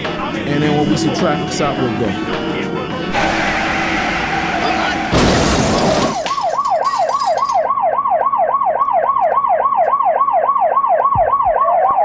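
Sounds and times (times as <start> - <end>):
siren yelping and wailing: 3.1 - 12.0.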